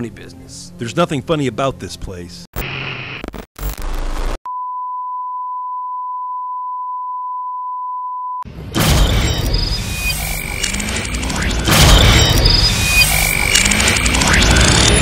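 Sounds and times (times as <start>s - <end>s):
tv static: 2.6s - 4.4s, 12.8s - 15.0s
loud noisy sound effect: 8.7s - 15.0s.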